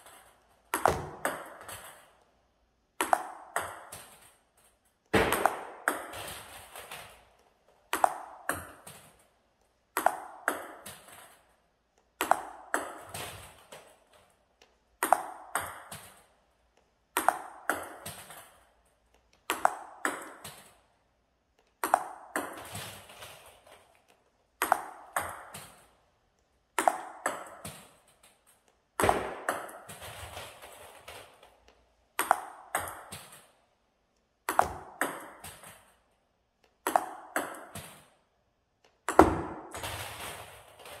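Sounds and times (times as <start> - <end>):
table tennis ball hitting paddle: 0.0 - 2.2, 3.0 - 4.4, 5.1 - 7.2, 7.9 - 9.2, 9.9 - 11.4, 12.2 - 14.0, 15.0 - 16.3, 17.1 - 18.6, 19.4 - 20.8, 21.8 - 23.5, 24.6 - 25.9, 26.7 - 28.1, 29.0 - 31.5, 32.2 - 33.6, 34.4 - 36.0, 36.6 - 38.1, 39.0 - 41.0
ball bouncing on table: 0.1 - 2.2, 3.0 - 4.3, 5.1 - 6.5, 7.9 - 9.1, 9.9 - 11.3, 12.2 - 13.8, 15.0 - 16.2, 17.2 - 18.5, 19.4 - 20.7, 21.8 - 22.8, 24.6 - 25.8, 26.8 - 28.0, 29.0 - 30.0, 32.2 - 33.5, 34.4 - 35.8, 36.8 - 38.1, 39.0 - 39.9.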